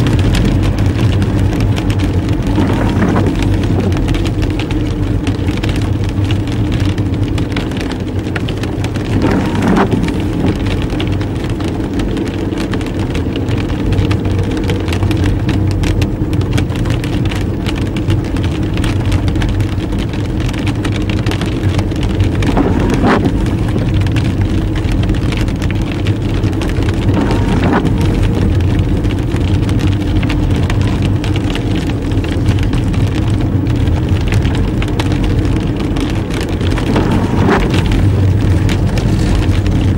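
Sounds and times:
car engine running: 0.0s - 39.9s
rain pattering on windscreen: 0.0s - 39.9s
tyres hissing on wet road: 0.1s - 16.1s, 20.5s - 39.9s.

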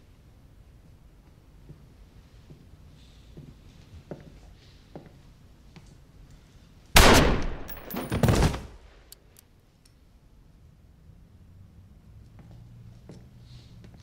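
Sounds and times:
gunshot in small room: 7.0s - 8.8s.

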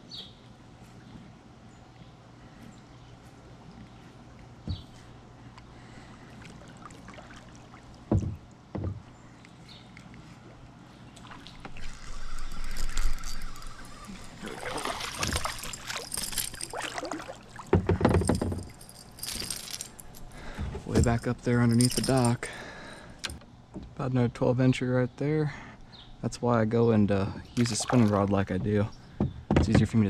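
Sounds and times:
water noise: 3.1s - 23.4s, 27.2s - 28.9s
clattering of boat and gear: 8.0s - 9.2s, 11.6s - 24.0s, 27.6s - 30.0s
knocks against kayak hull: 8.1s - 9.1s, 28.5s - 30.0s.

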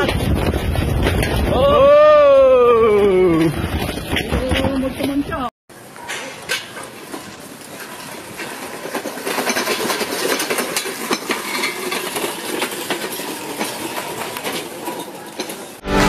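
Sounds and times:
trolley wheels rattling on concrete: 0.0s - 1.9s, 2.9s - 15.8s.

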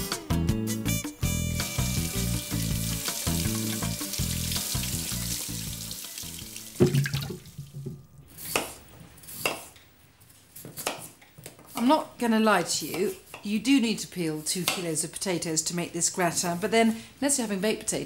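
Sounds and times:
background music: 0.0s - 8.2s
kitchen tap running: 1.8s - 7.9s.

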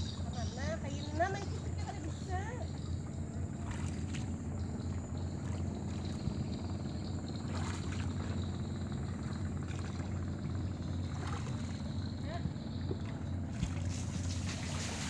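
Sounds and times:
boat engine drone: 0.0s - 15.0s.

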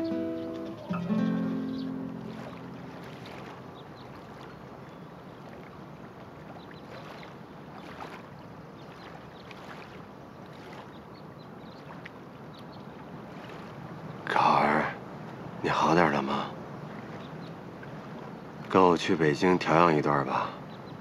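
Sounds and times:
water: 0.0s - 21.0s
wind: 0.0s - 21.0s.

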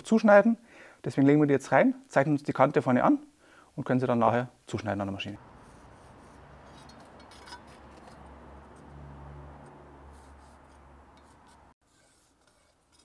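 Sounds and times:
pencil scratching on metal: 5.5s - 8.2s, 10.1s - 13.0s.

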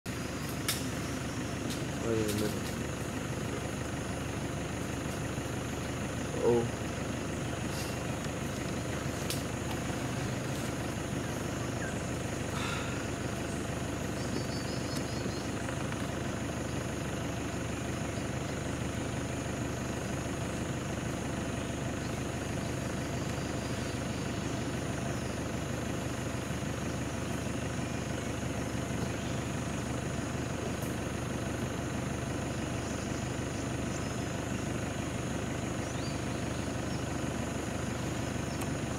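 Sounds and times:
engine idling: 0.1s - 38.9s.

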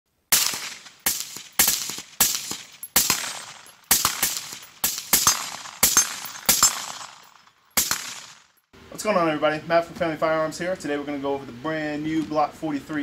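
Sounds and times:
gunshots: 0.3s - 8.5s.

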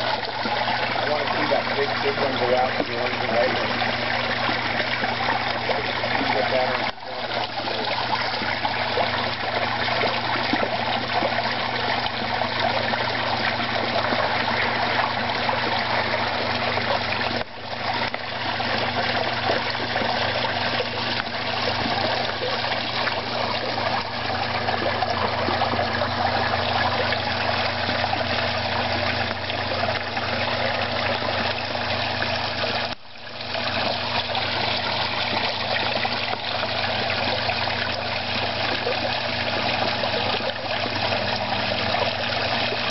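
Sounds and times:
low steady hum: 0.0s - 42.9s
water trickling into pond: 0.0s - 42.9s.

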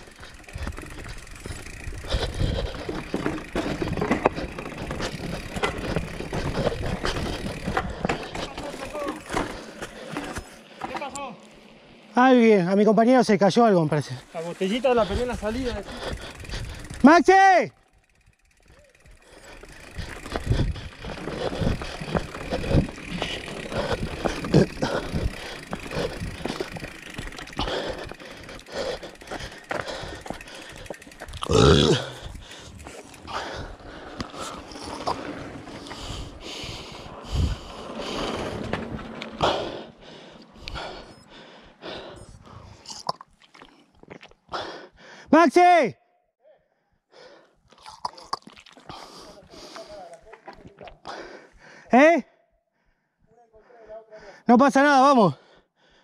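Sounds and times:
wind and tyre rumble: 0.0s - 10.5s, 14.6s - 17.1s, 18.0s - 42.9s
bike clicks and knocks: 0.1s - 11.3s, 19.6s - 31.5s.

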